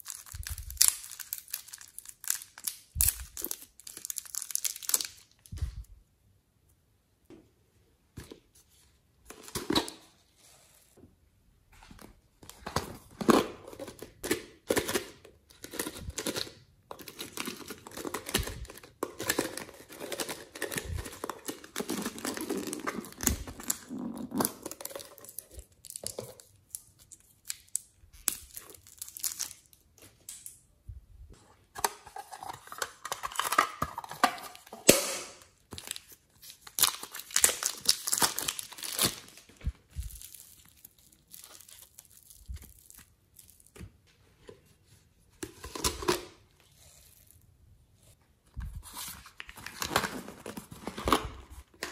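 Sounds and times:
plastic crinkling: 0.0s - 5.6s, 35.7s - 43.8s
plastic bag opened: 0.0s - 5.8s, 35.8s - 43.7s.

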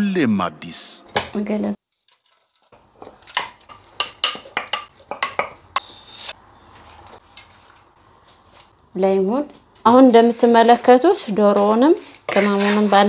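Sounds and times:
wooden spoon clicking on plates: 3.3s - 5.6s
spoon scraping: 5.8s - 7.5s, 10.2s - 13.0s.

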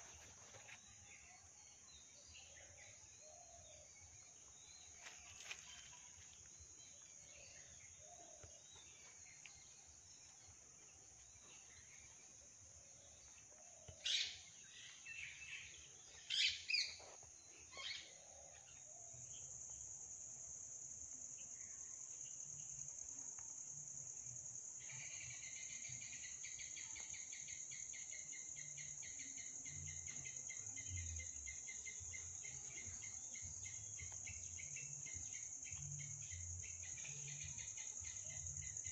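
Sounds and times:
cricket chirping: 0.0s - 38.9s
high-pitched insect trill: 14.0s - 38.9s.

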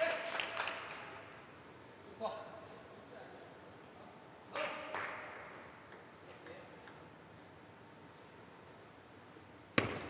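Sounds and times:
table tennis ball knock: 9.8s - 10.0s.

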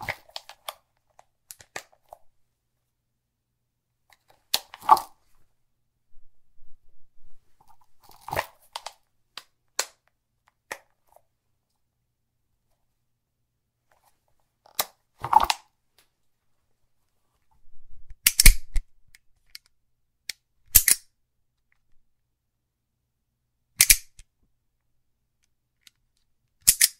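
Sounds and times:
pistol parts clicking and clacking: 18.2s - 18.8s, 19.4s - 21.1s, 23.8s - 24.3s, 26.6s - 26.9s.

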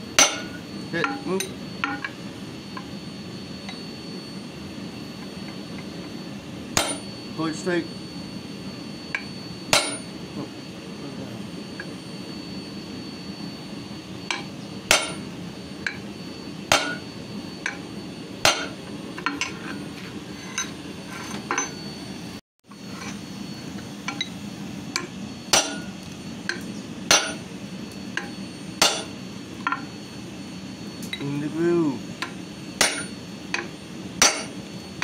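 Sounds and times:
hammer striking steel on anvil: 0.2s - 2.2s, 6.8s - 7.1s, 9.1s - 10.1s, 14.3s - 15.3s, 16.7s - 17.8s, 18.4s - 19.6s, 24.9s - 25.9s, 26.5s - 27.4s, 28.2s - 29.9s, 32.2s - 34.6s.

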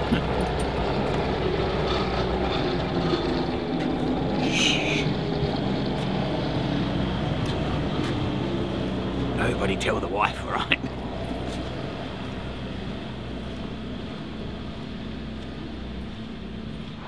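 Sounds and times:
vehicle engine running: 0.0s - 17.0s
person hushing: 4.4s - 5.1s.

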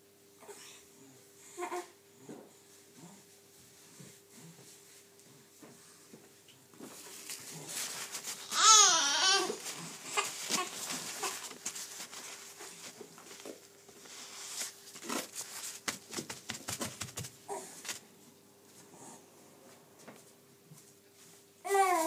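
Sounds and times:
faint steady hum: 0.0s - 22.0s
gloved hands clicking and rustling: 14.6s - 18.0s.

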